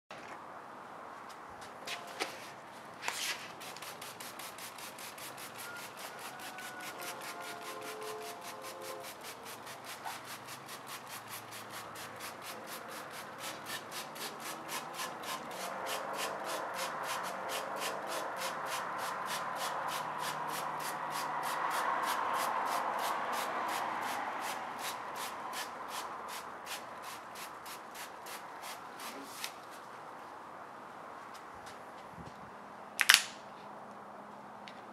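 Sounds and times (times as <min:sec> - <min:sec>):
trigger spray bottle hissing: 0:03.5 - 0:21.3.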